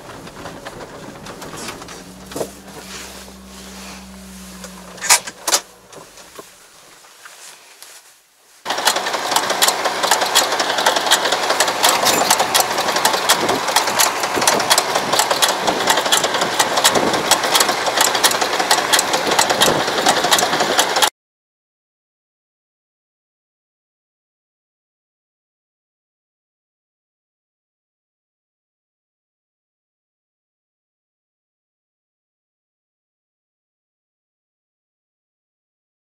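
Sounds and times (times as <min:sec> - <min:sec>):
tractor fast-ticking clatter: 0:00.0 - 0:07.0, 0:08.7 - 0:21.1
vehicle engine humming in cab: 0:00.0 - 0:21.1
sharp clicks: 0:08.7 - 0:21.1.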